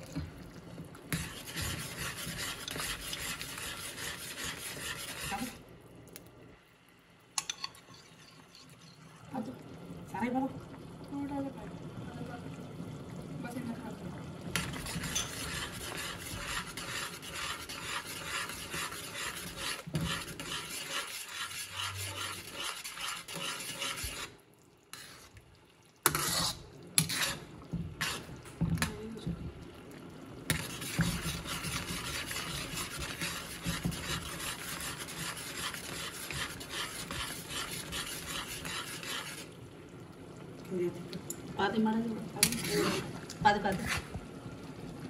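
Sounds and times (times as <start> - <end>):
spatula scraping a steel wok: 1.1 - 5.6, 14.6 - 25.3, 26.0 - 28.3, 30.5 - 39.5, 42.4 - 43.1, 43.7 - 44.1.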